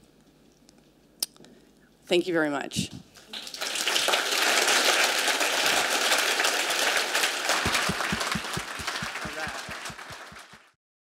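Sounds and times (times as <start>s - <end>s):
audience applauding: 3.3s - 10.8s
low thumps: 7.7s - 10.5s.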